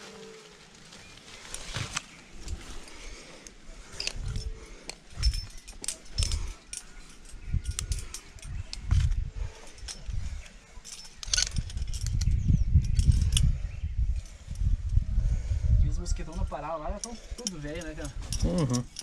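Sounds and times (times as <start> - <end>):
climbing hardware jangling and clicking: 2.4 - 14.7, 16.2 - 19.0
low rumbles on microphone: 11.4 - 16.1.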